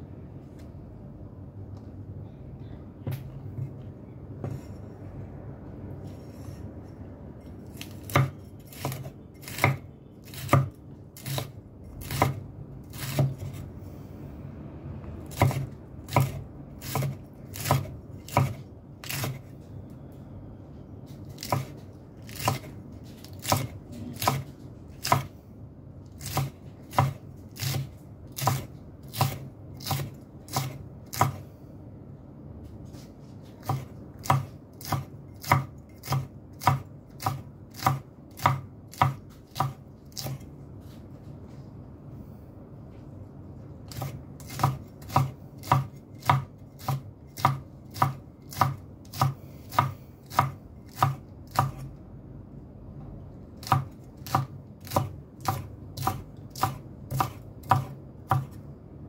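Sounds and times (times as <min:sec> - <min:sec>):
knife chopping on cutting board: 0:07.7 - 0:13.6, 0:15.3 - 0:19.5, 0:21.2 - 0:25.3, 0:26.1 - 0:31.4, 0:32.8 - 0:40.5, 0:43.9 - 0:51.9, 0:53.6 - 0:58.6.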